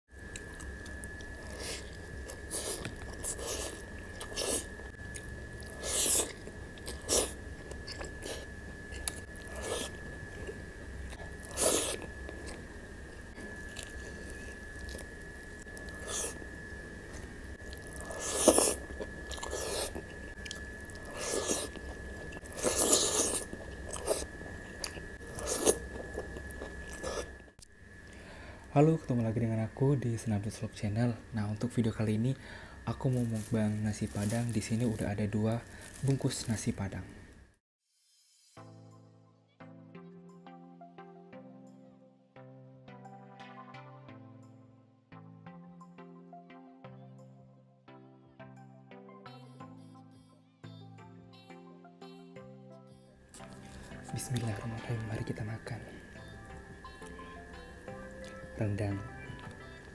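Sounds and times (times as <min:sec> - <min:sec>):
close chewing and crunching: 0:00.2 - 0:12.6, 0:13.4 - 0:16.5, 0:17.1 - 0:28.2, 0:32.9 - 0:36.8, 0:53.3 - 0:56.4.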